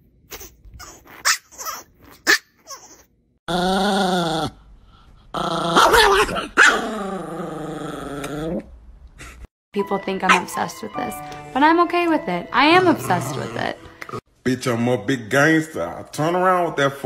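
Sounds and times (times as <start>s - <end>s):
small dog growling: 5.3s - 8.7s, 12.8s - 14.2s.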